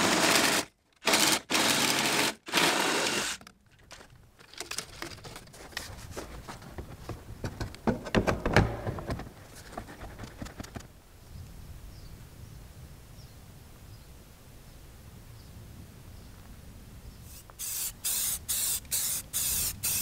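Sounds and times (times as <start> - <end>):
reciprocating saw cutting pipe: 0.0 - 3.5
plastic pipes clicking and knocking: 3.4 - 10.8.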